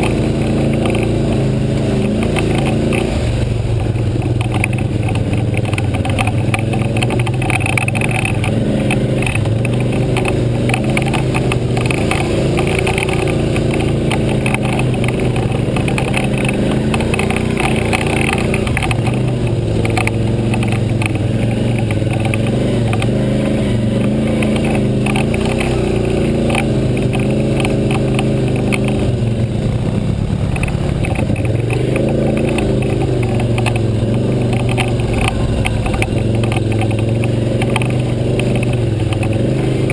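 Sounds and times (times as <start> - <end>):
atv engine running: 0.0 - 39.9
knocks and rattles from bumps: 3.7 - 29.4.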